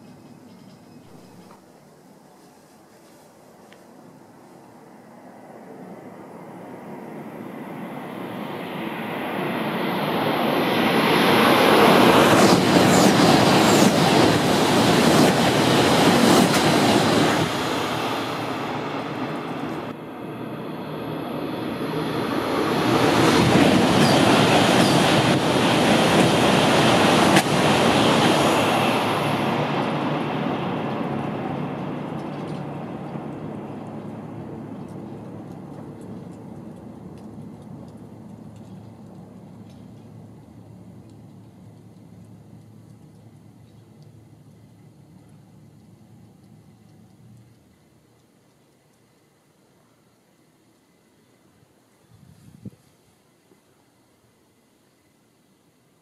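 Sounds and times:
high-speed trains passing: 0:00.0 - 0:48.2.

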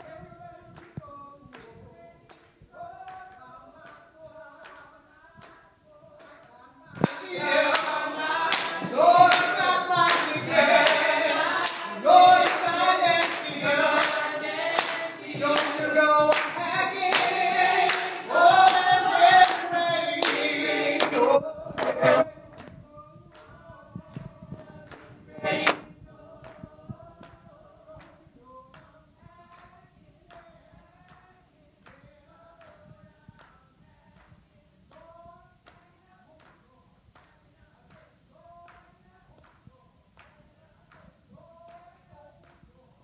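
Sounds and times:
mixed group singing: 0:00.0 - 0:32.9
hand claps: 0:00.8 - 0:01.7, 0:02.3 - 0:04.0, 0:04.6 - 0:05.6, 0:06.2 - 0:27.4, 0:28.0 - 0:42.7.

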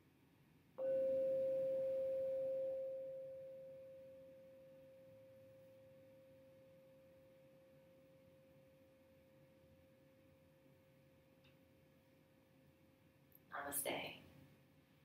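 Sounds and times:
singing bowl ringing: 0:00.8 - 0:08.8.

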